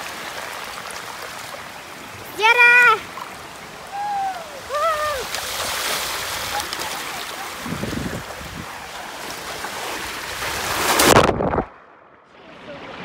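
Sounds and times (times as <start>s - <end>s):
water rushing down slide: 2.4s - 11.8s
loud splash into pool: 9.2s - 11.8s.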